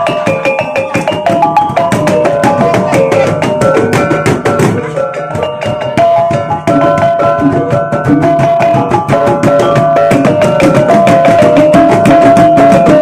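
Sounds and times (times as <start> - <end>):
hand-beaten drum strokes: 0.0 - 13.0
small gongs playing fast melody: 0.0 - 13.0.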